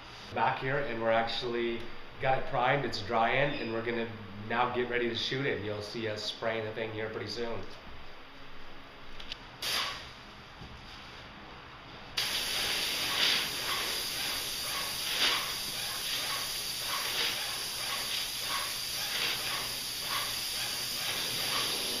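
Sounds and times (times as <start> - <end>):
paint spray gun hissing: 9.6 - 10.1, 12.2 - 22.0.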